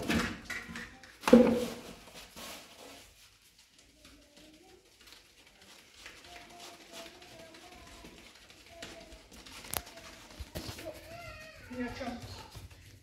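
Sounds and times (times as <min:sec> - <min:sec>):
bowl and sieve clattering on metal tray: 0:00.0 - 0:02.2
flour rustling through sieve: 0:01.2 - 0:13.0.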